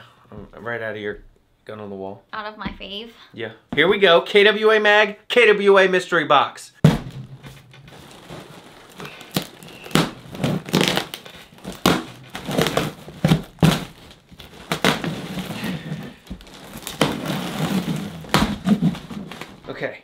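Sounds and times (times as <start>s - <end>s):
tape ripping on cardboard box: 7.9s - 19.6s.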